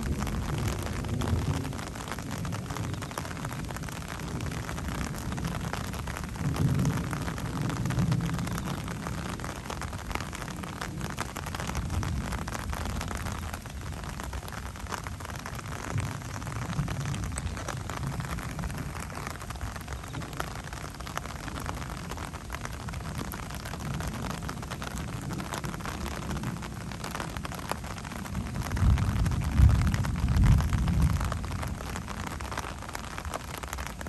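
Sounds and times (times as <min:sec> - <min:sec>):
steady rain: 0:00.0 - 0:34.0
thunder rumble: 0:15.5 - 0:33.7.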